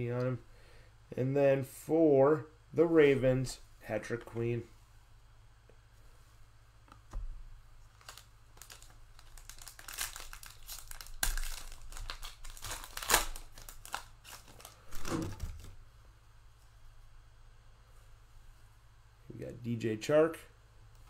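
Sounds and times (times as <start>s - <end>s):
foil wrapper crinkling and tearing: 7.9s - 15.6s.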